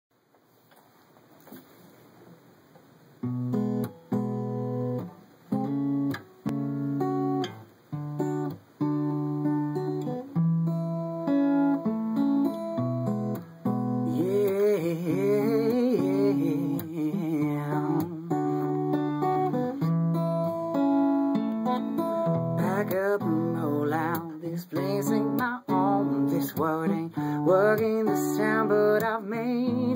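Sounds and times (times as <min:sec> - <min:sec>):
acoustic guitar strummed chords: 0:03.2 - 0:29.9
man singing: 0:14.0 - 0:19.9, 0:22.5 - 0:29.9.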